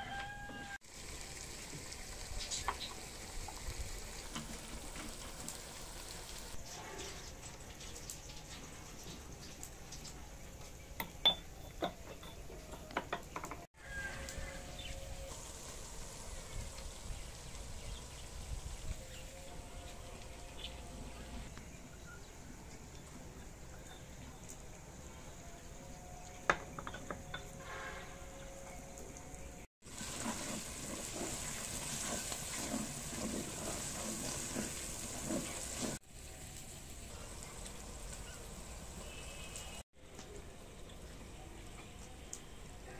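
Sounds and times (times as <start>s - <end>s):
faint outdoor background: 0.0s - 42.9s
food sizzling in hot oil: 0.2s - 6.7s, 13.7s - 19.5s, 29.8s - 39.8s
clay pots clicking and knocking: 11.0s - 13.7s, 26.4s - 27.6s
wooden spatula scraping pot: 30.0s - 36.0s.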